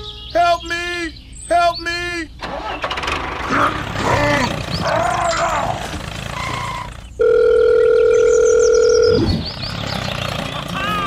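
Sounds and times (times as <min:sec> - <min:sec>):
loud electronic beep: 0:07.8 - 0:09.5.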